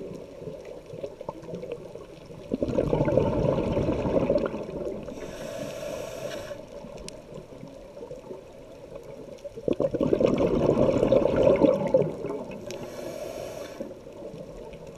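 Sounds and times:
exhaled bubbles bubbling: 0:00.0 - 0:05.4, 0:06.4 - 0:14.9
regulator hissing inhalation: 0:05.1 - 0:06.8, 0:12.7 - 0:14.0.

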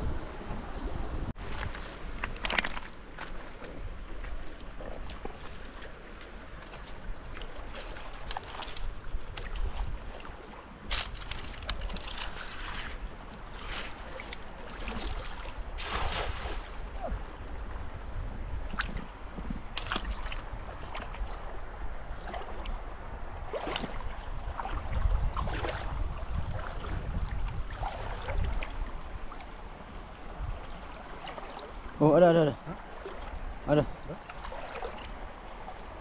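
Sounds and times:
wind buffeting microphone: 0:00.0 - 0:02.6, 0:06.4 - 0:31.1.

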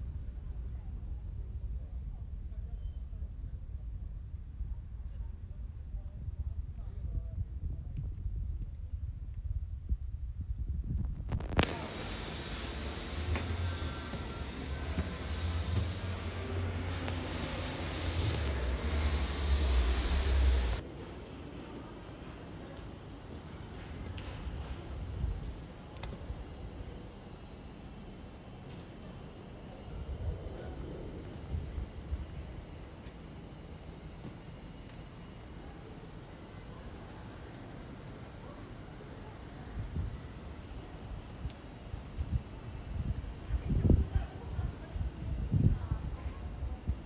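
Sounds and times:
low rumbles: 0:05.6 - 0:20.8
insects chorus: 0:11.3 - 0:47.0.

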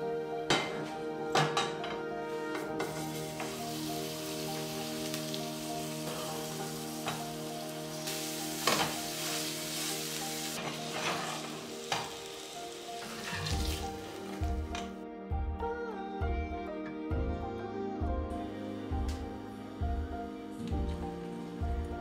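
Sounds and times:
soft background music: 0:00.0 - 0:22.0
meat sizzling in a frying pan: 0:02.8 - 0:14.7
metal spatula scraping and tapping: 0:13.0 - 0:13.7.

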